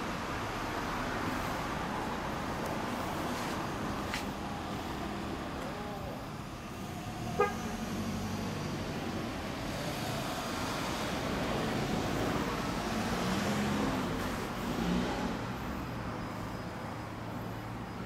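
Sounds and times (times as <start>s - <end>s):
car passing: 0.0s - 18.0s
vehicle engines running: 0.0s - 18.0s.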